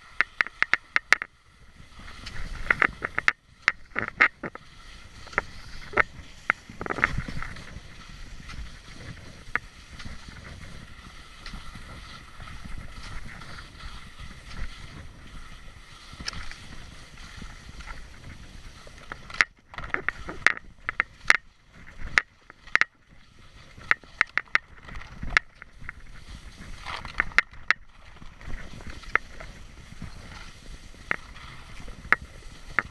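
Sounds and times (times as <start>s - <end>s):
skis scraping on hard snow: 0.0s - 32.9s
sharp clicks and knocks: 0.2s - 1.3s, 2.6s - 4.6s, 19.1s - 21.4s, 22.1s - 23.0s, 26.9s - 27.8s.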